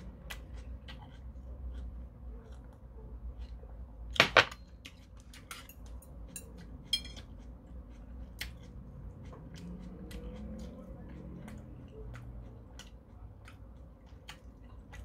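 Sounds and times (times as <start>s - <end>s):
tableware clacking: 4.2s - 4.7s, 5.5s - 7.2s.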